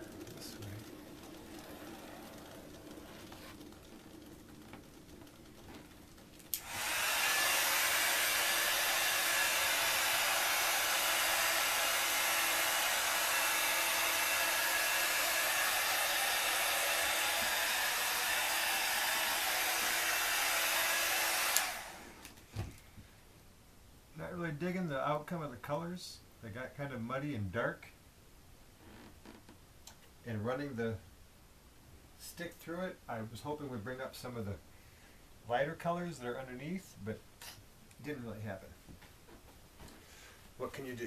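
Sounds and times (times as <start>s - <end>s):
hot-air blower rushing air: 0.0s - 22.7s.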